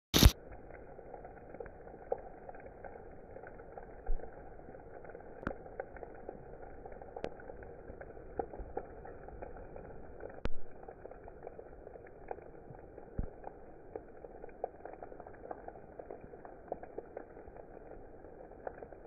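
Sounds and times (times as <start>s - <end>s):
heavy rain hissing: 0.2s - 0.4s
hailstones ticking: 0.2s - 19.0s.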